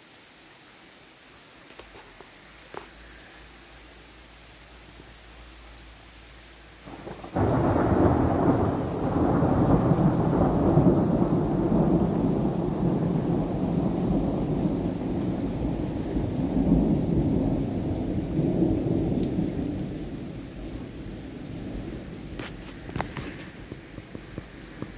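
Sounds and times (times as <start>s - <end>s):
thunderclap and rumble: 6.9s - 24.9s.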